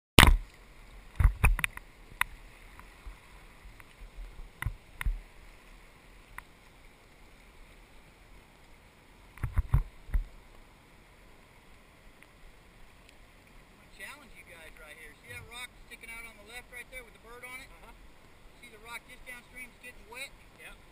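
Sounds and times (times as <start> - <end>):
faint rush of water: 0.2 - 20.9
knocks and thumps on raft: 1.2 - 1.7.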